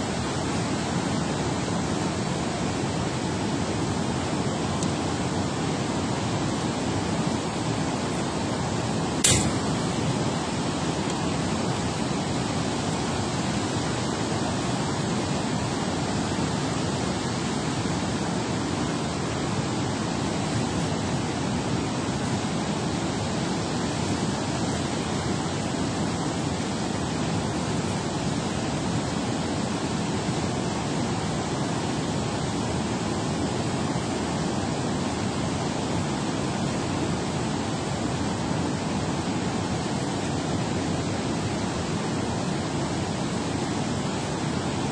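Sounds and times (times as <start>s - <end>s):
sharp knock: 9.2s - 9.7s.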